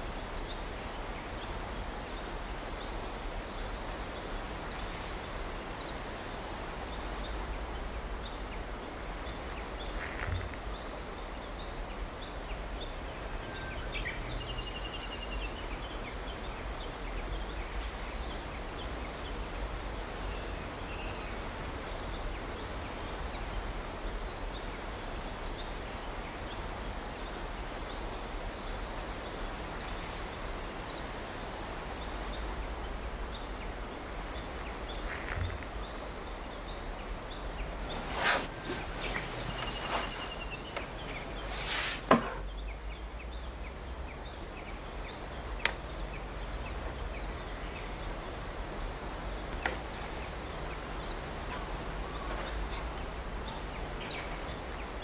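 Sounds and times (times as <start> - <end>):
even hiss: 27.4 - 42.9.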